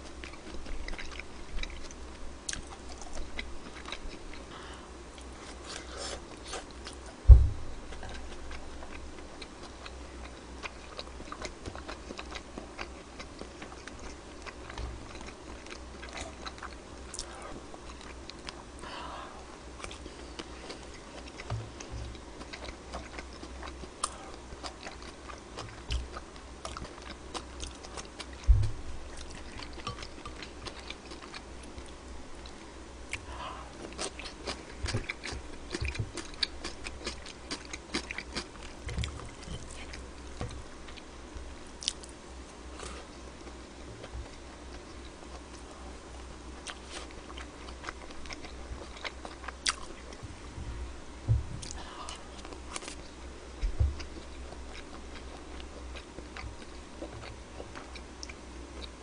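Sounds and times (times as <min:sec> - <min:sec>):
person chewing: 0:00.1 - 0:07.2, 0:07.8 - 0:18.8, 0:19.8 - 0:41.1, 0:41.8 - 0:43.6, 0:44.2 - 0:50.2, 0:51.6 - 0:59.0
dull thumps: 0:07.2 - 0:07.9, 0:50.2 - 0:51.7.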